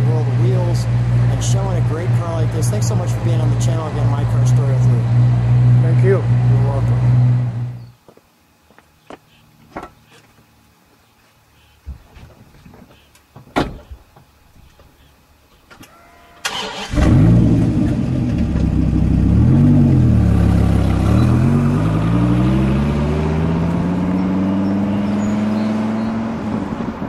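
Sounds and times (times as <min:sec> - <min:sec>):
car engine cranking and revving: 0:00.0 - 0:07.8, 0:16.4 - 0:27.0.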